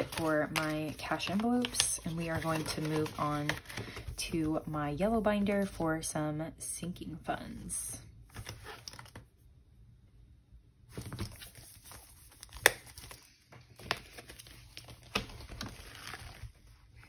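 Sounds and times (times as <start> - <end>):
paper crinkling and rustling: 0.0 - 4.6, 10.9 - 17.0.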